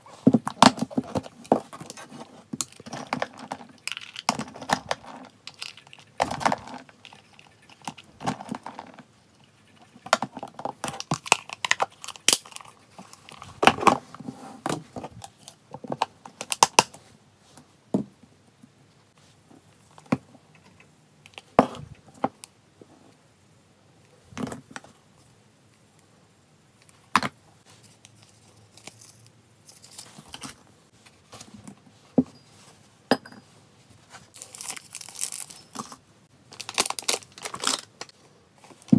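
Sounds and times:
plastic containers clicking and clattering: 0:00.2 - 0:07.2
dry kibble rattling: 0:02.6 - 0:13.6
packaging crinkling: 0:34.3 - 0:38.9.

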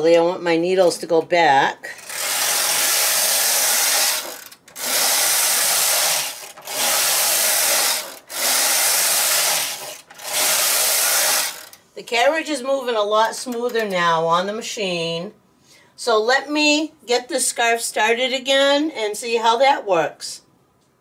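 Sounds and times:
knitting machine carriage rattling: 0:02.0 - 0:11.8.

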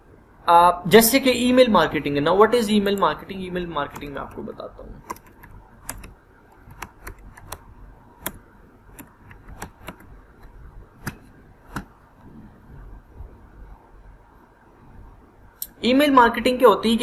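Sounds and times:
keyboard key clicks: 0:03.9 - 0:04.4, 0:05.0 - 0:07.6, 0:08.2 - 0:11.9.

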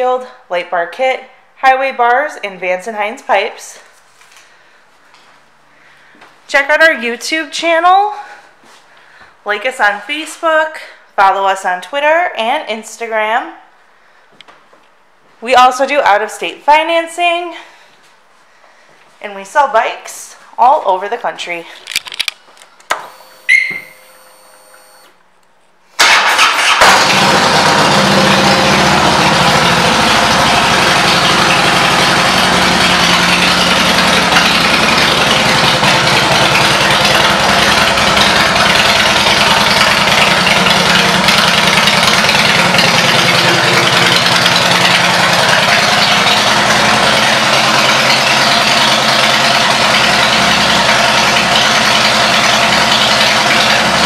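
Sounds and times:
motorcycle engine starting: 0:26.0 - 0:54.0
motorcycle engine idling loudly: 0:26.9 - 0:54.0.

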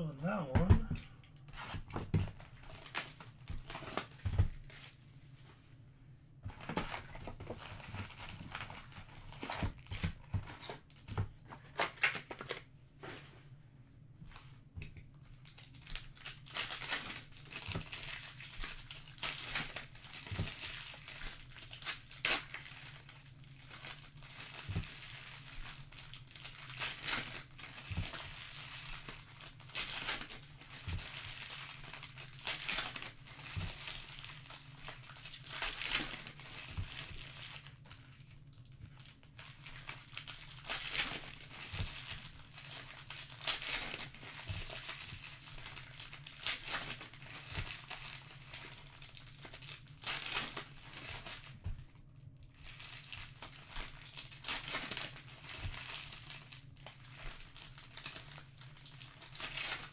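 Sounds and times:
foil wrappers crinkling and tearing: 0:00.9 - 0:05.0, 0:06.5 - 0:12.7, 0:14.3 - 0:59.9.

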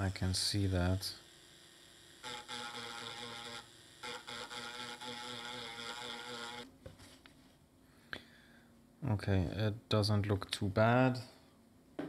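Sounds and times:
tool scraping circuit board: 0:02.2 - 0:06.7.

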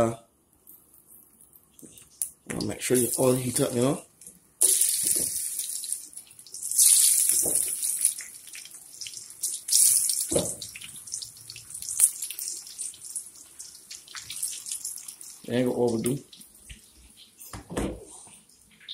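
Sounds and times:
oil crackling fizz: 0:00.9 - 0:18.9
chips dropped into sizzling oil: 0:04.6 - 0:15.2.

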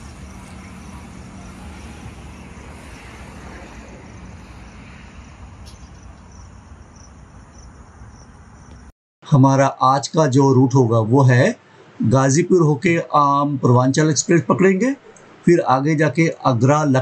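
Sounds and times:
insects chirping: 0:00.0 - 0:08.9
low traffic rumble: 0:00.0 - 0:17.0.

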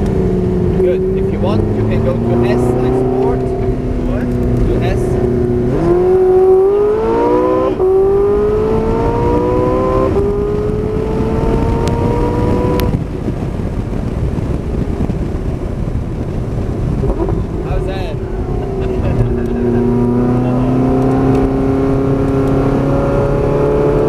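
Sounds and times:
car engine accelerating: 0:00.0 - 0:24.0
wind and road rush: 0:00.0 - 0:24.0.

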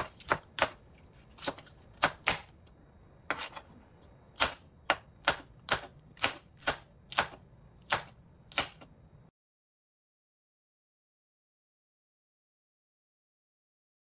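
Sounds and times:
knife chopping on cutting board: 0:00.0 - 0:02.6, 0:03.3 - 0:08.9.

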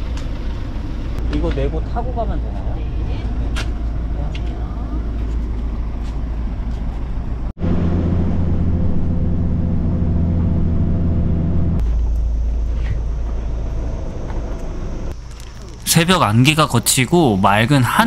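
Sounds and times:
bus engine hum: 0:00.0 - 0:18.0
idling bus rumble: 0:00.0 - 0:18.0.

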